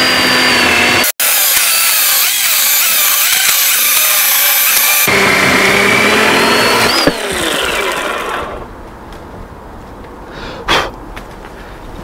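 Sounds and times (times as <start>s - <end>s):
chainsaw motor winding down: 0.0s - 8.6s
chainsaw cutting log: 0.0s - 8.7s.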